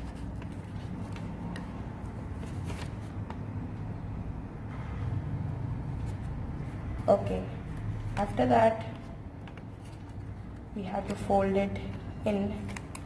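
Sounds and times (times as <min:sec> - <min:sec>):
paper crackling while folded: 0:00.0 - 0:03.4.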